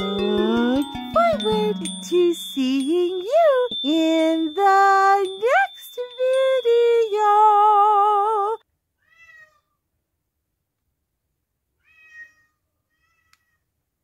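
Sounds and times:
cat meowing: 9.0s - 9.7s, 11.8s - 13.6s.

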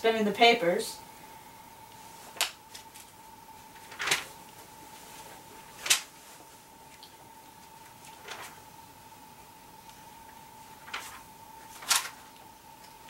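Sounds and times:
faint high hum: 0.0s - 13.0s
newspaper rustling: 2.3s - 6.7s, 7.6s - 8.7s, 10.7s - 12.4s.

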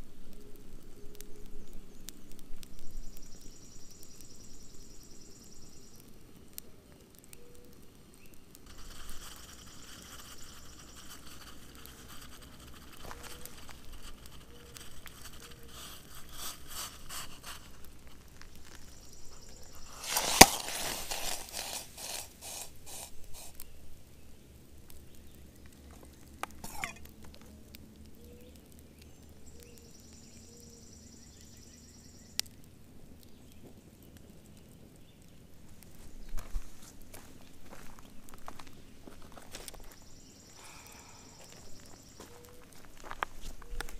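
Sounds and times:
campfire crackling: 0.0s - 43.9s
sharp crack: 8.2s - 23.7s
steam hissing and sizzling: 8.6s - 23.8s, 26.4s - 27.0s.

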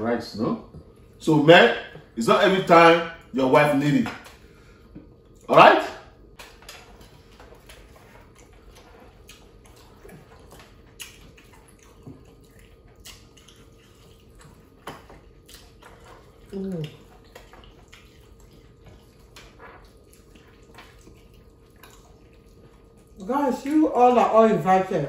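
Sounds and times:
wet chewing and swallowing: 0.6s - 1.2s, 4.2s - 23.8s
short hummed voice: 16.5s - 17.0s.

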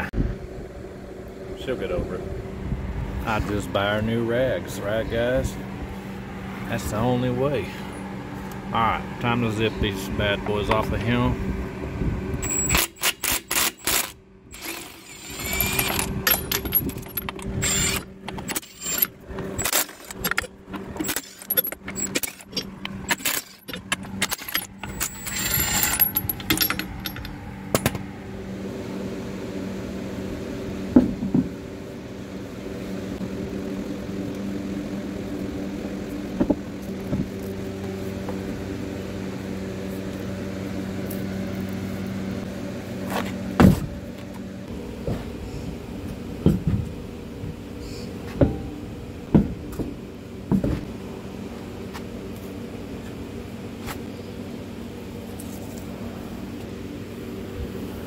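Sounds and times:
steady low hum: 0.0s - 58.0s
impact driver whining bursts: 12.4s - 27.9s.

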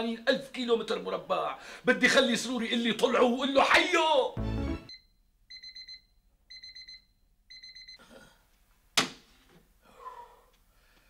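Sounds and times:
alarm clock beeping: 4.4s - 8.0s.

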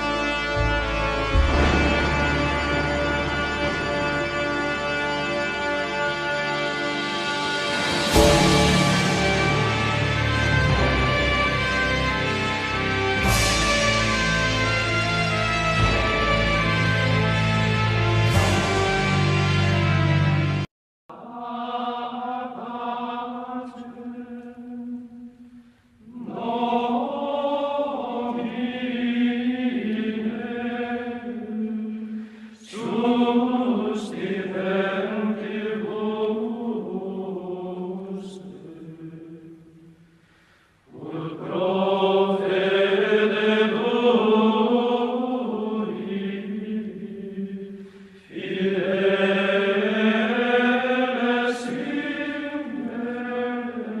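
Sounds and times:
voices chanting long notes: 0.0s - 20.6s.

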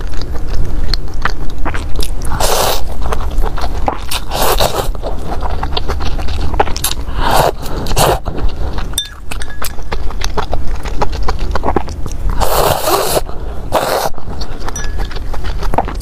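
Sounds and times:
wet chewing: 0.0s - 16.0s
slurping noodles: 1.6s - 9.0s, 11.0s - 16.0s.

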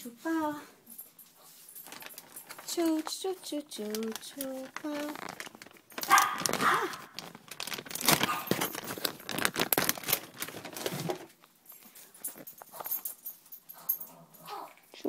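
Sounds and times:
plastic crinkling: 1.5s - 13.1s.

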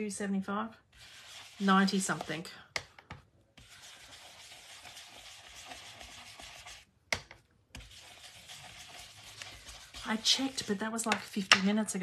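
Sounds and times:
stamp rubbing on ink pad: 1.0s - 2.4s, 3.6s - 6.8s, 7.8s - 11.2s.

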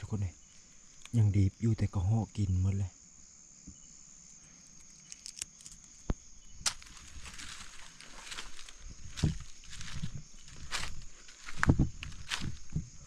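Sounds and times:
high insect trill: 0.0s - 13.0s
footsteps through undergrowth: 6.6s - 12.9s.

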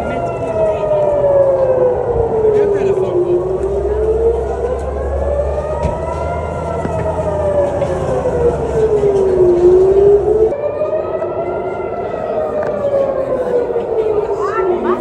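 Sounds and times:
siren wailing: 0.0s - 15.0s.

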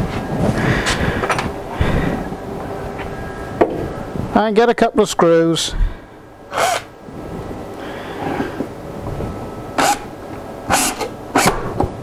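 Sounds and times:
cordless drill driving screws: 6.5s - 6.9s, 9.8s - 10.1s.

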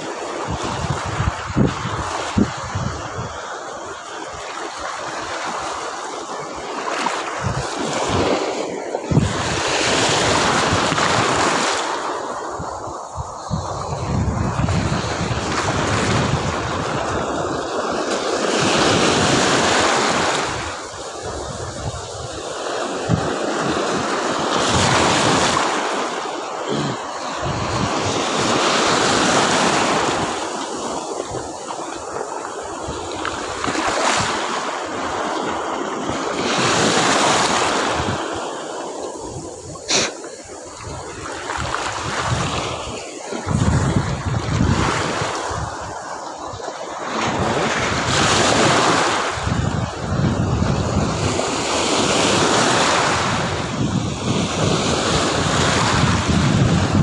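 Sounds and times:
surf breaking in shallow water: 0.0s - 57.0s
wind buffeting microphone: 0.0s - 57.0s.

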